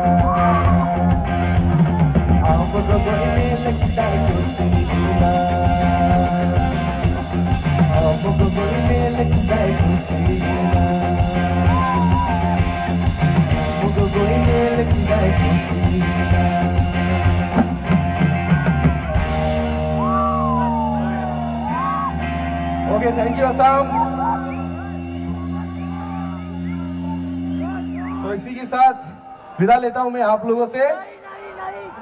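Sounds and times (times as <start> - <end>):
drum kit: 0.0 - 22.4
electric guitar: 0.0 - 29.5.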